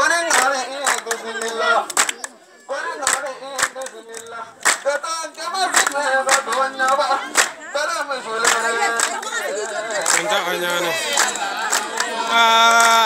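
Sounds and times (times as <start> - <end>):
voices singing together: 0.0 - 13.0
sharp hand claps: 0.3 - 2.4, 3.0 - 5.0, 5.7 - 7.6, 8.4 - 10.4, 11.1 - 13.0.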